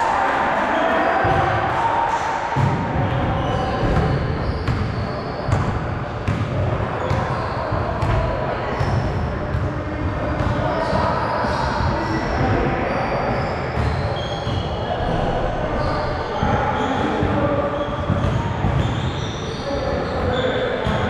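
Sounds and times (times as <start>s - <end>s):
players' voices: 0.0s - 21.0s
basketball bouncing on gym floor: 2.6s - 12.7s, 13.8s - 14.7s, 16.4s - 19.2s.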